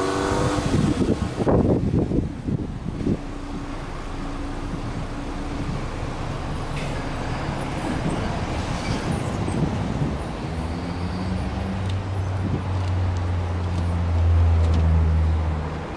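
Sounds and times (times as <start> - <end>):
car engine idling: 1.0 - 8.6.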